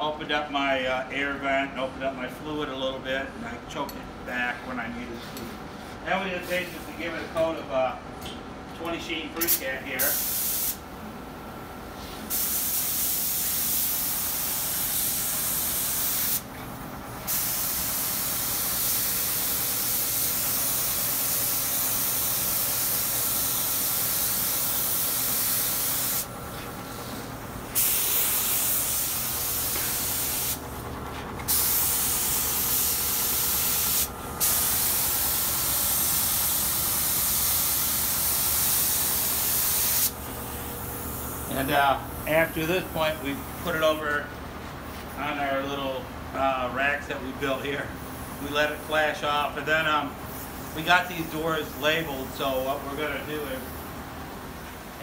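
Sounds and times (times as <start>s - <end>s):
spray gun hissing: 9.5s - 10.8s, 12.3s - 16.5s, 17.3s - 30.6s, 31.5s - 40.2s.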